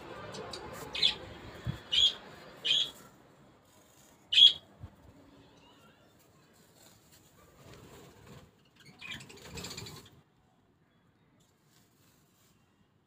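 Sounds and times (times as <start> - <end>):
bird chirping: 0.3 - 1.2, 1.8 - 3.1, 4.3 - 4.6.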